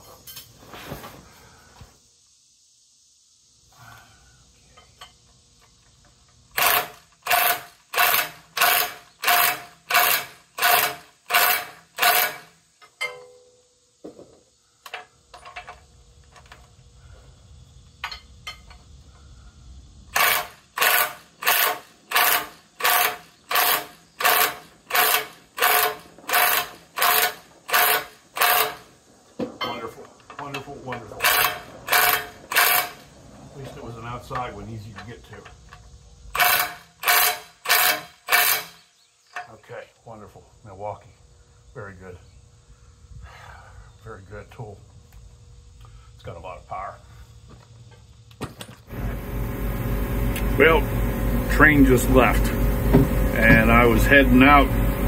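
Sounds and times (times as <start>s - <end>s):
impact wrench hammering on bolt: 6.6s - 13.2s, 20.2s - 28.8s, 36.4s - 38.8s.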